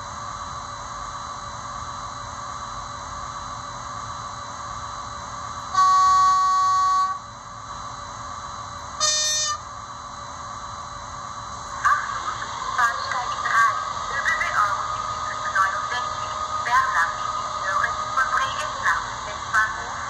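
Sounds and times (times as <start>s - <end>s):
steady hum: 0.0s - 20.0s
model train horn blast: 5.7s - 7.2s, 9.0s - 9.7s
short high horn toot: 5.8s - 7.2s, 9.0s - 9.6s.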